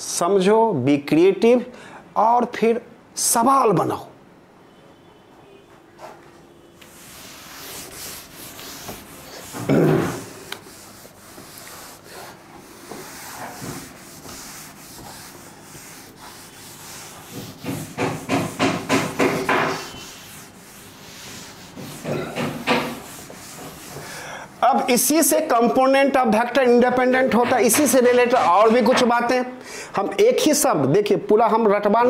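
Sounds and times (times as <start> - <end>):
cloth wiping chalkboard: 6.0 - 25.8, 26.6 - 29.2.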